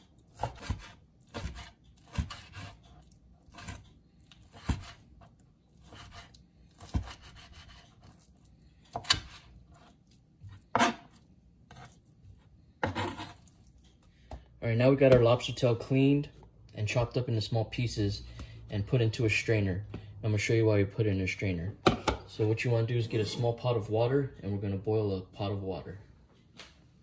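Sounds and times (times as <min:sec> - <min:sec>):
knife chopping on plastic board: 0:00.3 - 0:08.2, 0:08.9 - 0:12.0, 0:12.8 - 0:13.4.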